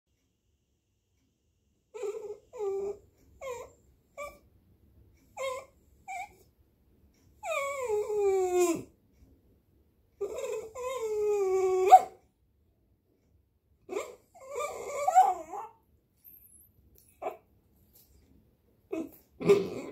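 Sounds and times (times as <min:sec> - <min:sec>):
dog whining: 0:01.9 - 0:04.4, 0:05.3 - 0:06.5, 0:07.4 - 0:08.9, 0:10.2 - 0:12.2, 0:13.9 - 0:17.5, 0:18.9 - 0:19.9.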